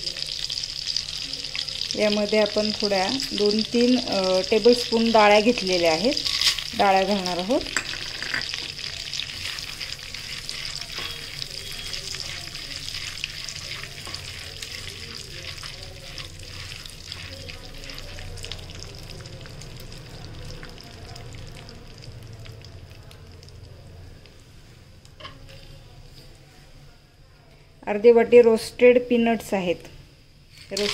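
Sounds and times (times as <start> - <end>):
food sizzling in hot butter: 0.0 - 23.2, 30.4 - 30.9
spatula stirring and scraping pan: 4.5 - 18.8, 30.5 - 30.9.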